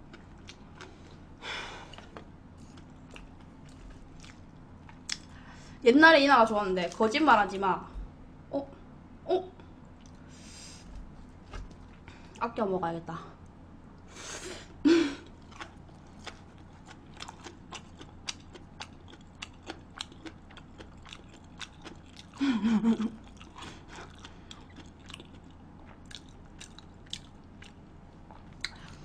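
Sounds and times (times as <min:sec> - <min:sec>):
person chewing food: 0:00.0 - 0:05.4, 0:15.2 - 0:29.0.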